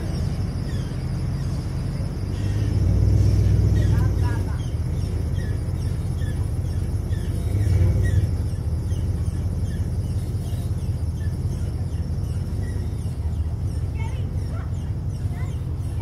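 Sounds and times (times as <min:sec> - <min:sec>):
truck engine running low: 0:00.0 - 0:16.0.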